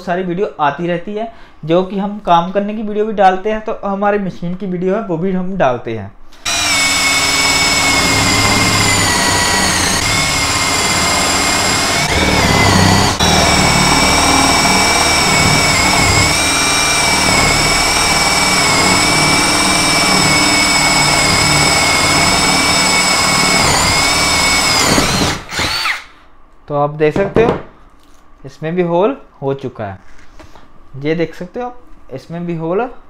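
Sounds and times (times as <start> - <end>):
drill bit cutting wood: 6.4 - 26.1
drill motor whine: 6.4 - 26.1.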